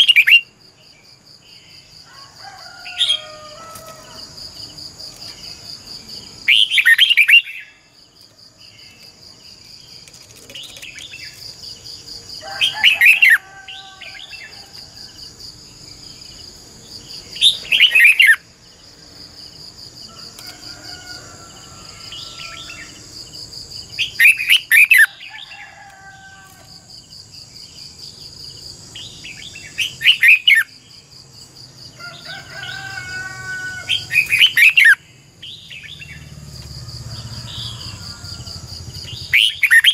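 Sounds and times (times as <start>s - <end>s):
bird warbling song: 38.9s - 39.9s.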